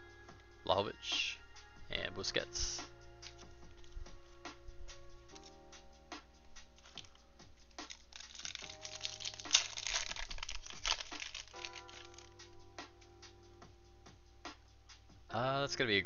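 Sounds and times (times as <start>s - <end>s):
plastic wrapper crinkling: 3.2s - 4.2s, 6.6s - 12.6s.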